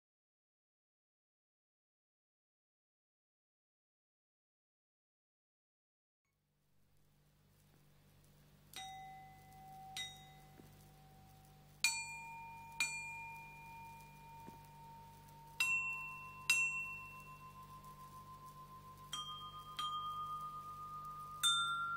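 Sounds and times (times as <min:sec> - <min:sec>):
copper chime ringing: 0:08.8 - 0:21.9.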